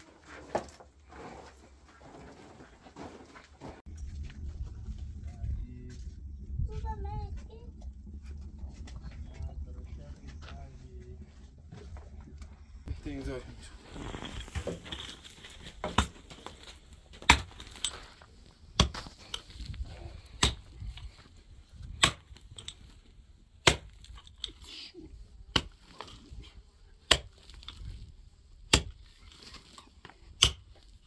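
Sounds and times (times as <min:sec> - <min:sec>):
pickaxe striking stony earth: 0:15.7 - 0:16.4, 0:17.1 - 0:18.0, 0:18.7 - 0:19.7, 0:20.3 - 0:21.1, 0:21.9 - 0:22.7, 0:23.6 - 0:24.6, 0:25.5 - 0:26.2, 0:27.0 - 0:28.0, 0:28.7 - 0:30.8.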